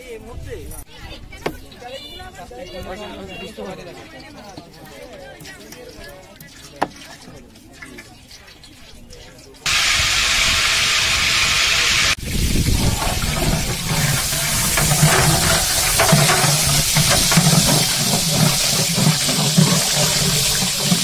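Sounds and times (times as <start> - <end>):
onions sizzling in hot oil: 9.6 - 21.0.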